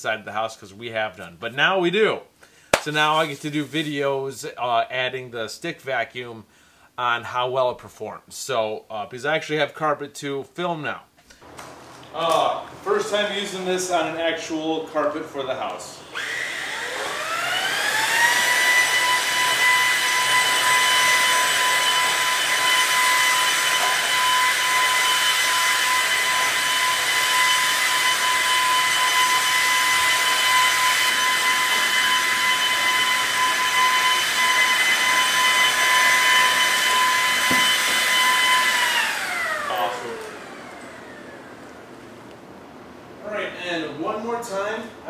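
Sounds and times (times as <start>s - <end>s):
stick vacuum whining on carpet: 16.0s - 42.4s.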